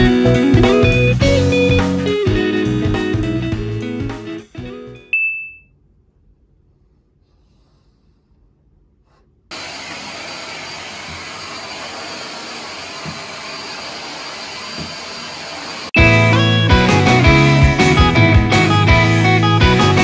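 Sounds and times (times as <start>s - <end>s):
guitar music: 0.0s - 5.0s, 16.0s - 20.0s
vacuum cleaner on carpet: 9.5s - 16.0s.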